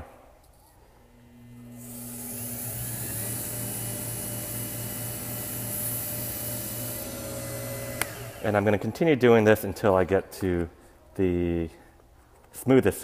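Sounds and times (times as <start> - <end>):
wood lathe motor hum: 1.1 - 10.6.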